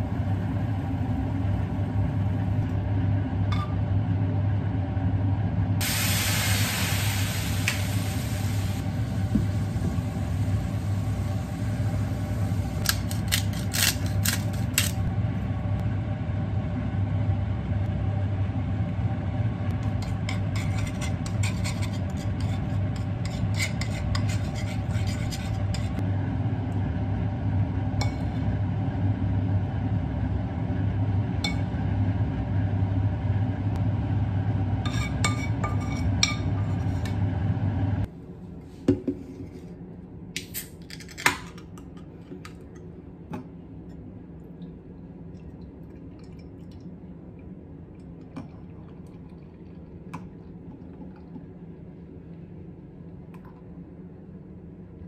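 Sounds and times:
steady low hum: 0.0s - 55.0s
metal spoon scraping frying pan: 20.0s - 26.0s, 34.9s - 37.2s.

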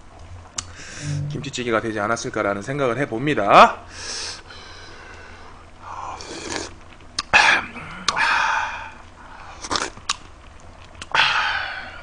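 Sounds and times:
slurping broth: 6.0s - 6.8s, 9.6s - 10.1s.

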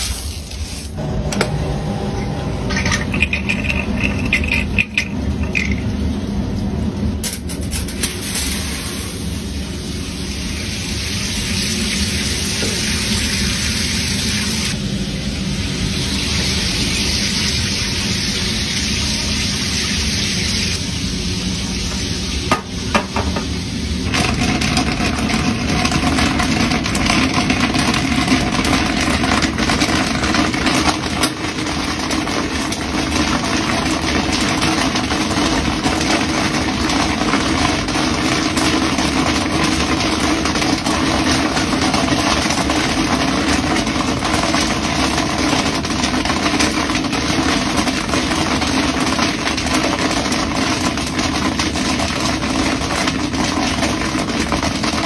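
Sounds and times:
popcorn machine motor hum: 0.3s - 55.0s
popcorn crackling and sizzling: 2.7s - 55.0s.

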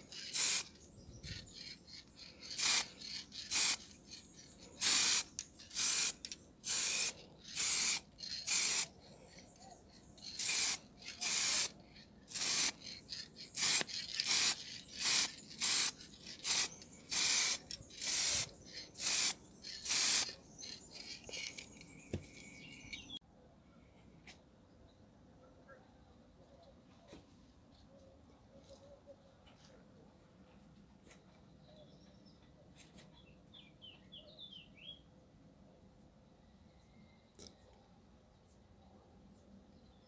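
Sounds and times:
aerosol spray paint hissing: 0.0s - 0.7s, 2.5s - 3.9s, 4.8s - 8.9s, 10.3s - 20.4s.

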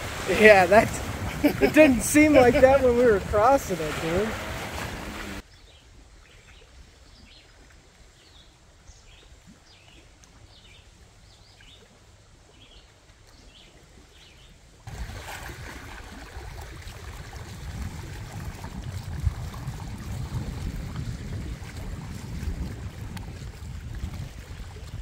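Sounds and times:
wind rumbling on microphone: 0.0s - 5.5s, 14.9s - 25.0s
choppy lake water: 0.0s - 25.0s.

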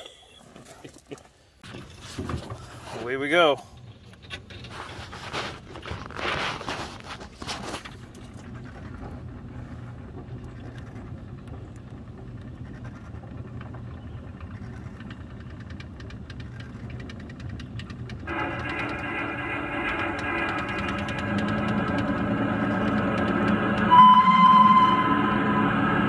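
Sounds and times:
locomotive engine droning: 7.7s - 26.0s
rushing bursts: 18.3s - 26.0s.

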